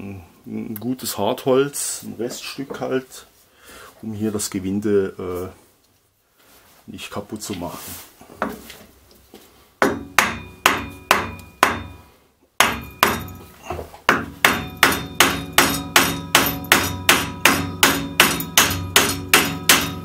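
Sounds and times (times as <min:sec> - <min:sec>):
hammer striking wooden block: 0:09.8 - 0:12.0, 0:12.6 - 0:20.0.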